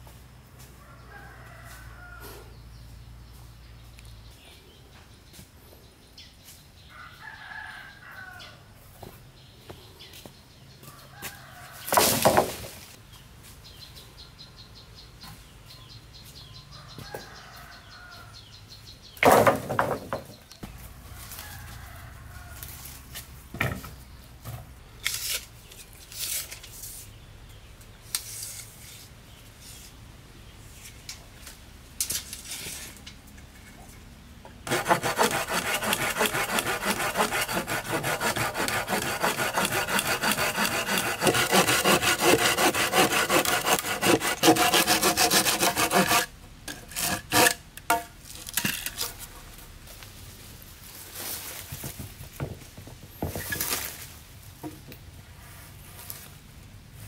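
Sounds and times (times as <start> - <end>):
hand saw cutting wood: 34.6 - 48.0.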